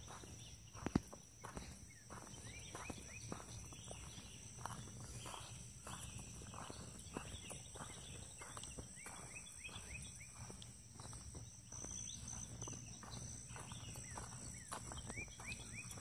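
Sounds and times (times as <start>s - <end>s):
bird chirping: 0.0s - 16.0s
footsteps walking: 0.0s - 16.0s.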